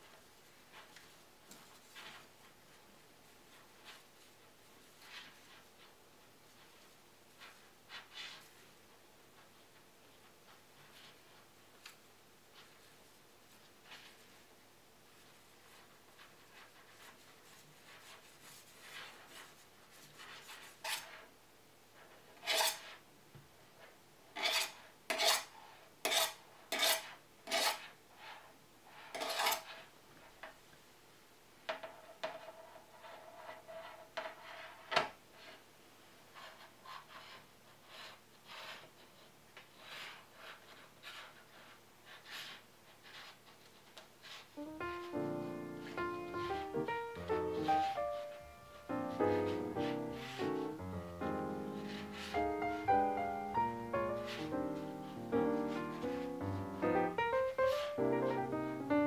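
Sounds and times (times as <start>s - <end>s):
knife scraping metal tin rim: 22.4s - 22.9s, 24.4s - 25.5s, 26.1s - 27.8s, 29.1s - 29.7s
fingers rubbing dough: 36.3s - 56.2s.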